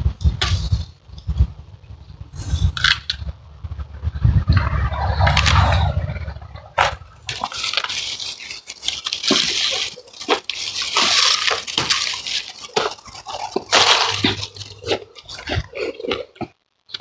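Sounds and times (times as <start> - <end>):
leaves and twigs rustling: 2.4 - 15.5
twigs snapping: 7.3 - 14.8.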